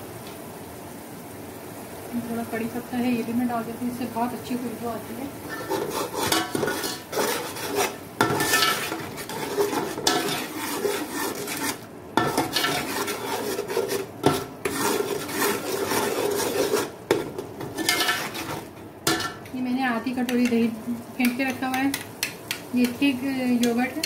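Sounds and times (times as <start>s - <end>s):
metal spoon scraping a pot: 5.5s - 19.5s.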